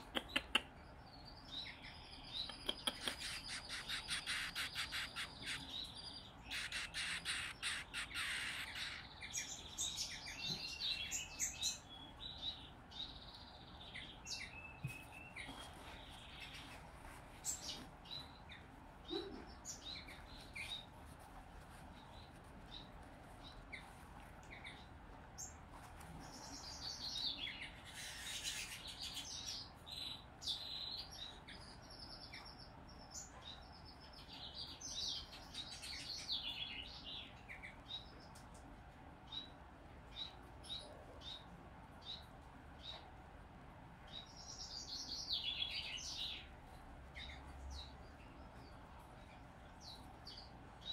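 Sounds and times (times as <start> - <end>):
finch chick begging chirps: 1.6 - 12.6.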